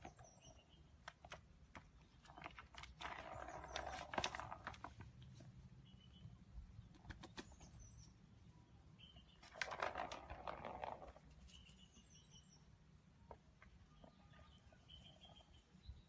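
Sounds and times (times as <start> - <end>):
cats rummaging through dry kibble: 2.2 - 5.4, 9.4 - 11.4.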